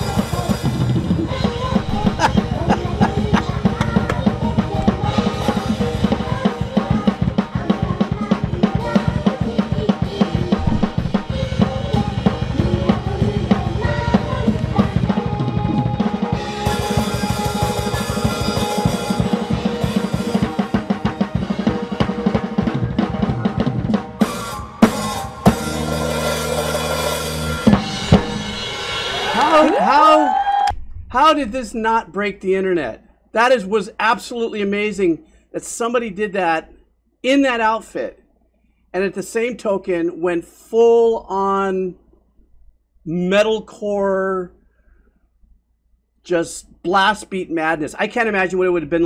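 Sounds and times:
loud drum hits: 0.0 - 29.4
metal music: 0.0 - 29.8
fast blast beat drumming: 0.0 - 30.0.

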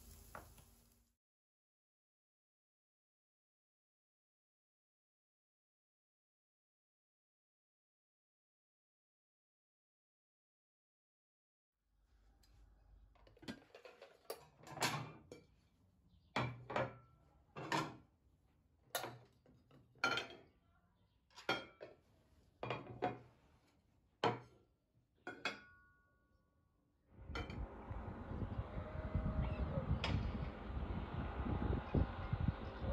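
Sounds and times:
ceramic dishes clinking: 20.0 - 20.4.

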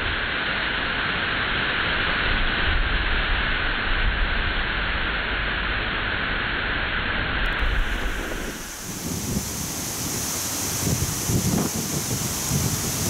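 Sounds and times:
rushing wind: 2.2 - 13.0
wind buffeting the microphone: 7.4 - 13.0.

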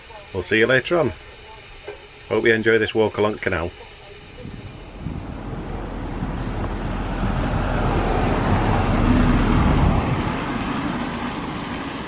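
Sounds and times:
car passing by: 4.4 - 12.0.

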